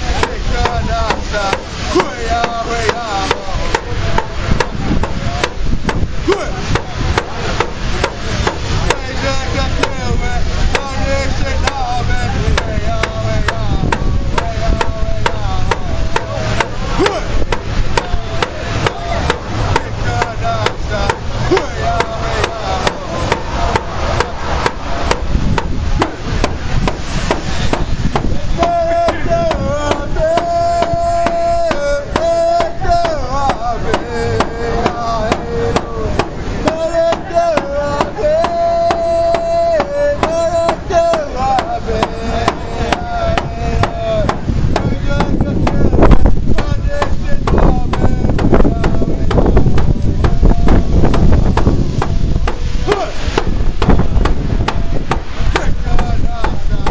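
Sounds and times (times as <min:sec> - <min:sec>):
person singing: 0:00.0 - 0:05.6, 0:06.2 - 0:25.6, 0:27.3 - 0:56.9
hand drum beat: 0:12.6 - 0:56.9.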